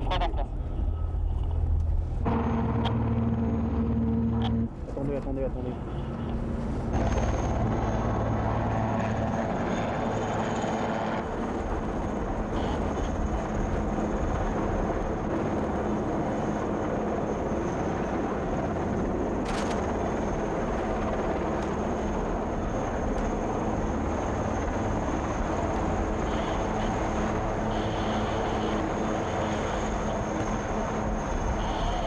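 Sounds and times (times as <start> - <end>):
aircraft engine drone: 0.0 - 32.0.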